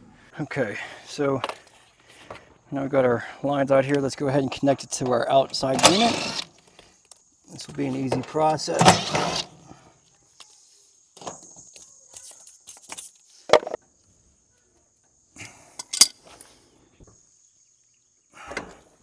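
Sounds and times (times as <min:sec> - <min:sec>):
metal clinks of wrenches and fittings: 0:15.8 - 0:16.6.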